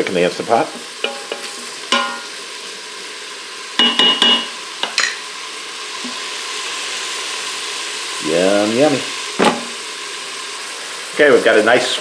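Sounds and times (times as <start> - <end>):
vegetables sizzling in pot: 0.0 - 12.0
wooden spoon knocking steel pot: 1.0 - 2.3, 3.8 - 5.1.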